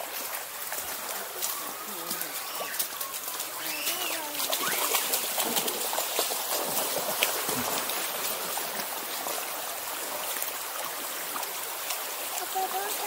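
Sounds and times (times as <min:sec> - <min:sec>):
stream water flowing: 0:00.0 - 0:13.0
faint splashing clicks: 0:00.1 - 0:08.9.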